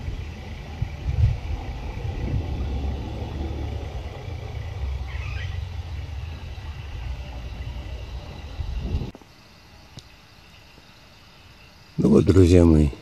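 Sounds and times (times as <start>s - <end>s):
thunder rumble: 0.0s - 9.2s
faint hiss: 0.0s - 13.0s.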